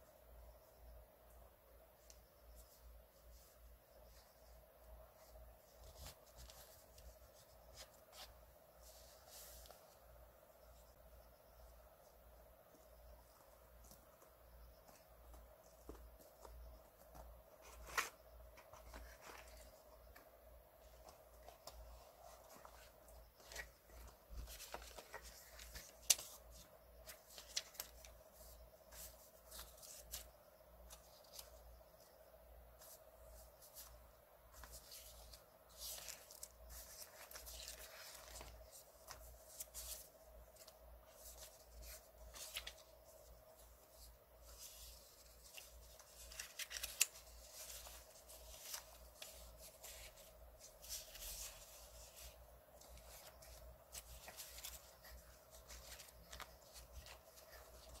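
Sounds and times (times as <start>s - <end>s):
faint steady hum: 0.0s - 58.0s
paper rustling and sliding: 15.8s - 19.9s, 20.8s - 31.6s, 32.8s - 58.0s.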